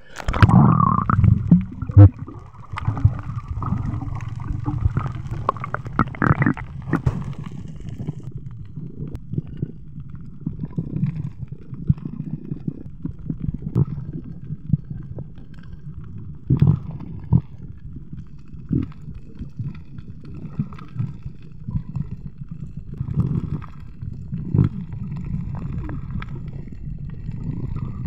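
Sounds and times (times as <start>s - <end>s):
muffled underwater rumble: 0.0s - 28.0s
underwater thumps and knocks: 0.3s - 8.3s.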